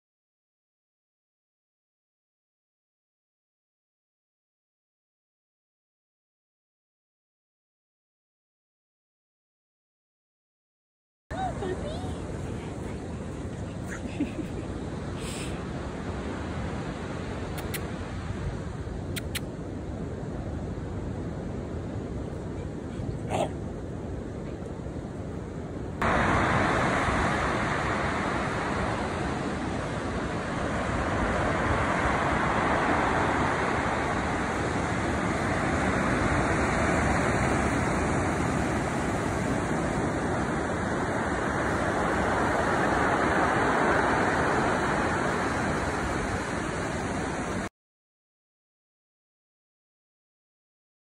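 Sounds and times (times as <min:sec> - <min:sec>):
ocean surf breaking: 0:25.9 - 0:47.7.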